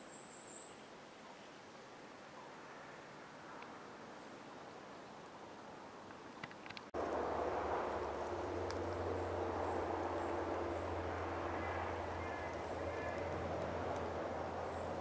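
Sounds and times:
outdoor rushing noise: 0:06.9 - 0:15.0
low hum: 0:07.0 - 0:15.0.

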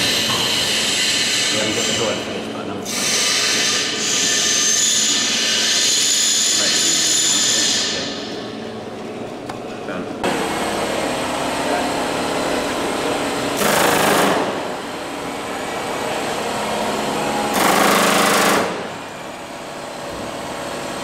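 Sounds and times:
pneumatic rivet gun hammering: 0:00.0 - 0:01.7, 0:13.6 - 0:14.8, 0:17.5 - 0:19.0
steady mechanical hum: 0:00.0 - 0:21.0.

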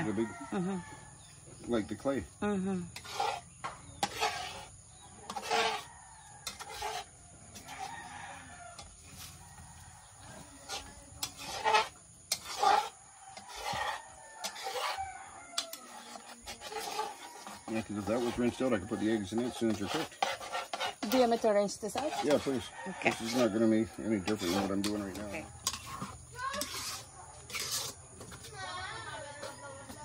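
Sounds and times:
rooster crowing: 0:00.0 - 0:01.2, 0:05.5 - 0:06.8, 0:07.6 - 0:10.6, 0:13.0 - 0:19.6, 0:22.3 - 0:24.8
metal ladle scraping wok: 0:02.9 - 0:08.0, 0:10.6 - 0:28.5.

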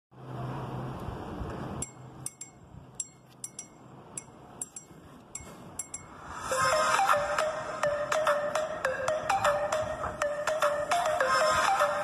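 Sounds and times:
mallet-like music intro: 0:05.8 - 0:12.0.

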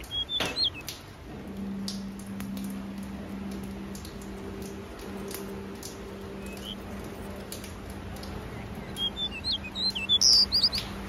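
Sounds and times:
short high bird chirps: 0:00.0 - 0:00.9, 0:08.8 - 0:10.9.

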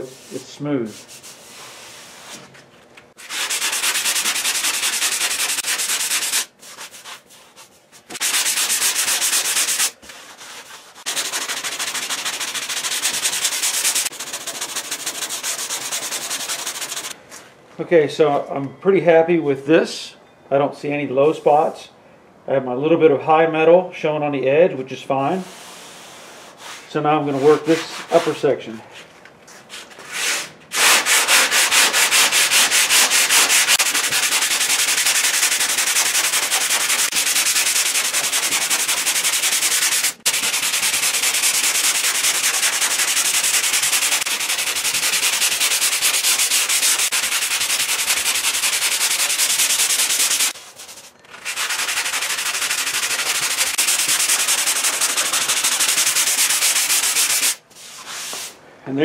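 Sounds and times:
sandpaper scraping back and forth: 0:03.2 - 0:17.2, 0:25.3 - 0:28.5, 0:29.5 - 0:58.6.

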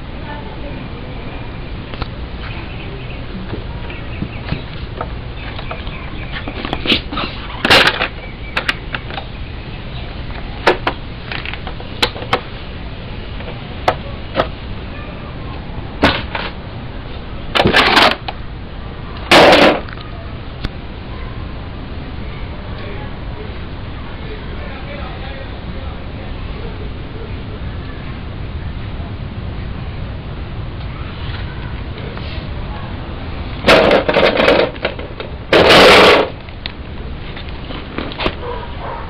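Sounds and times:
steady low rumble: 0:00.0 - 0:39.0
short rustling scrapes: 0:32.2 - 0:32.6
handling clicks and knocks: 0:33.6 - 0:36.8.

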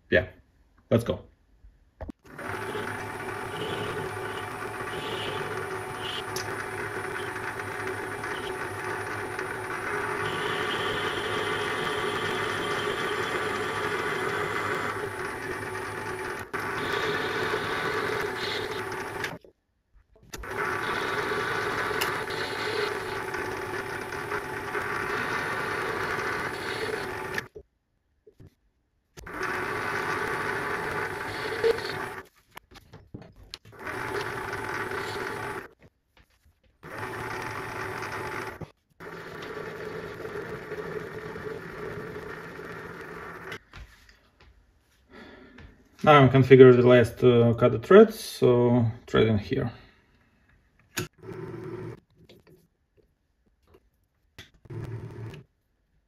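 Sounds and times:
metal lathe motor humming: 0:02.3 - 0:19.4, 0:20.4 - 0:27.5, 0:29.2 - 0:32.2, 0:33.8 - 0:35.7, 0:36.9 - 0:43.6.

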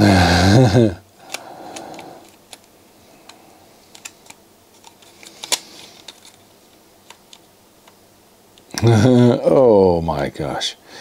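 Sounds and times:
minidisc mechanism clicking: 0:01.2 - 0:08.7.

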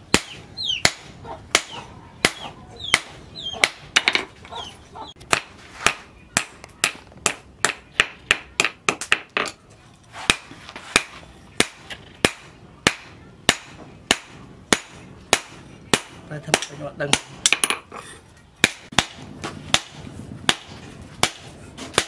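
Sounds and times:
hammer striking hot steel on anvil: 0:00.1 - 0:04.3, 0:10.3 - 0:17.8, 0:18.6 - 0:22.0.

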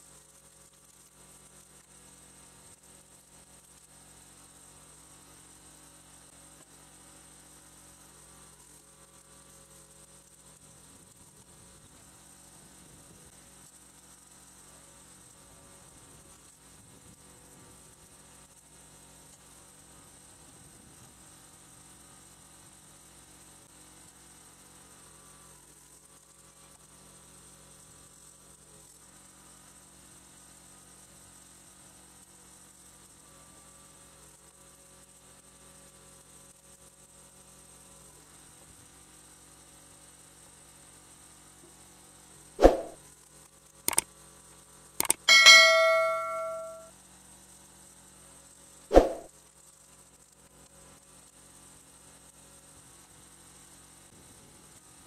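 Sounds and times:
quick clicks: 0:45.0 - 0:46.8
loud pop with short ring: 0:45.0 - 0:46.9.

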